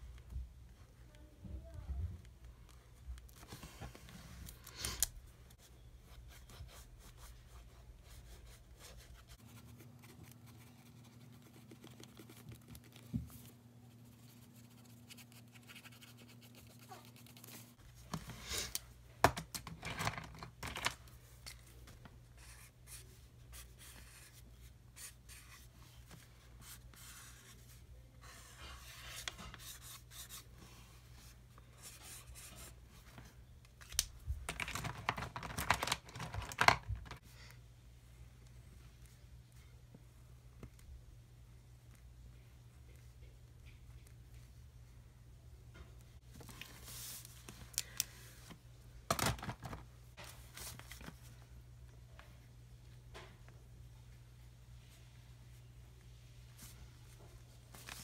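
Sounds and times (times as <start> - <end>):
faint low hum: 0.0 - 35.2
markers scratching on paper: 13.9 - 17.8.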